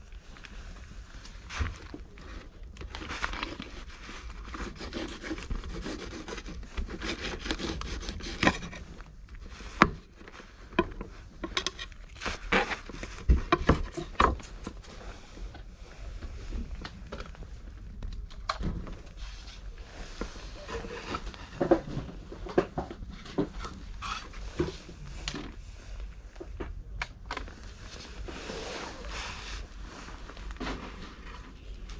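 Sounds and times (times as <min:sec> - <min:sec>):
fur rubbing on microphone: 0:27.8 - 0:30.4.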